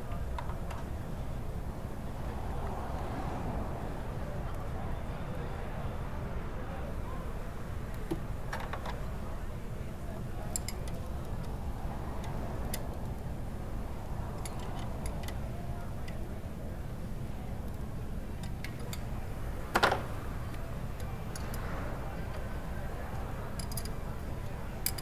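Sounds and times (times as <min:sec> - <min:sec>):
light clicks and taps on engine: 0:00.1 - 0:01.0, 0:07.9 - 0:09.2, 0:10.1 - 0:13.4, 0:14.2 - 0:16.6, 0:17.4 - 0:25.0.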